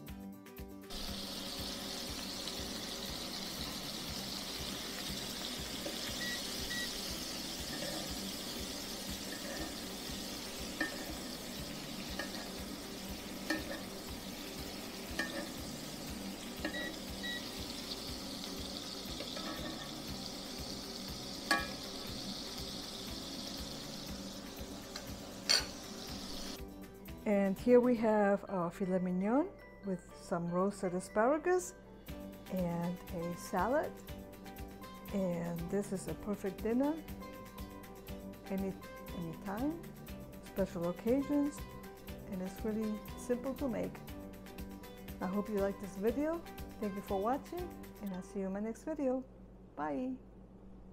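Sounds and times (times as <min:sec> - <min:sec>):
steaks sizzling in skillet: 0:00.9 - 0:26.7
metal spoon scraping pan: 0:07.4 - 0:12.6, 0:13.4 - 0:14.1, 0:15.2 - 0:15.7, 0:19.2 - 0:20.0, 0:24.9 - 0:25.8.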